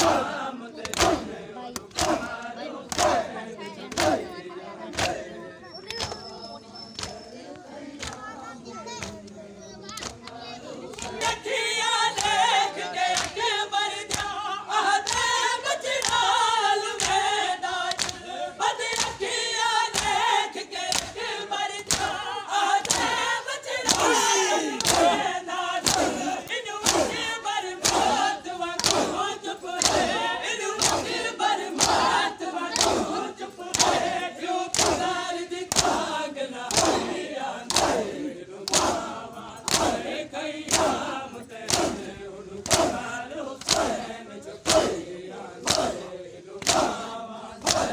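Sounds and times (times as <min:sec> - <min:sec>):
men chanting together: 0:00.0 - 0:47.9
hands slapping chests: 0:00.8 - 0:03.2, 0:04.9 - 0:05.2, 0:05.8 - 0:06.2, 0:07.0 - 0:07.2, 0:08.0 - 0:08.2, 0:09.0 - 0:11.4, 0:12.1 - 0:12.4, 0:13.1 - 0:13.4, 0:14.1 - 0:14.4, 0:15.0 - 0:15.4, 0:16.0 - 0:16.4, 0:17.0 - 0:17.2, 0:17.9 - 0:18.2, 0:18.9 - 0:19.2, 0:19.9 - 0:20.2, 0:20.9 - 0:21.2, 0:21.8 - 0:22.2, 0:22.8 - 0:23.2, 0:23.8 - 0:27.2, 0:27.8 - 0:29.2, 0:29.8 - 0:30.2, 0:30.8 - 0:34.1, 0:34.7 - 0:40.1, 0:40.7 - 0:45.0, 0:45.6 - 0:46.0, 0:46.6 - 0:47.9.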